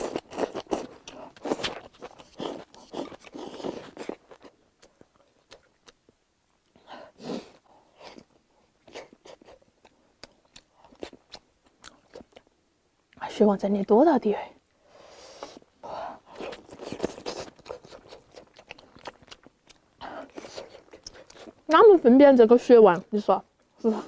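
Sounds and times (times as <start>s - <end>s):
crunchy chewing: 0.0s - 6.8s, 7.4s - 12.5s, 16.3s - 21.7s.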